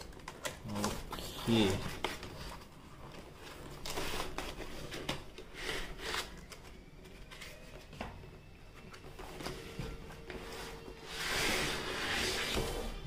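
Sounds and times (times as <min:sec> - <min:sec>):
cardboard rustling and scraping: 0:00.7 - 0:06.6, 0:09.0 - 0:13.0.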